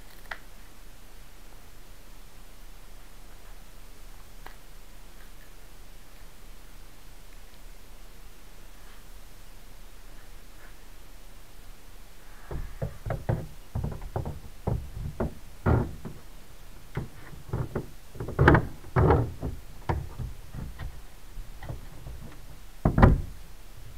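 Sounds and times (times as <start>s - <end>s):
pump knocking against hollow shell: 12.5s - 16.3s.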